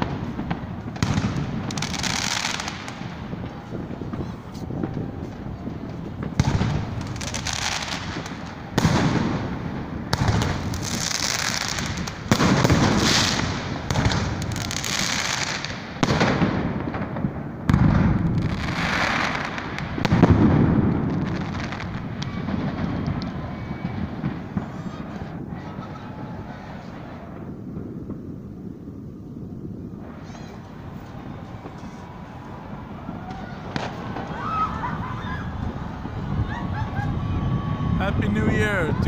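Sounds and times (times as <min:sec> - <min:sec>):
small fireworks pops: 0:00.0 - 0:38.3
fireworks booming: 0:00.0 - 0:39.0
fireworks crackling: 0:00.0 - 0:39.0.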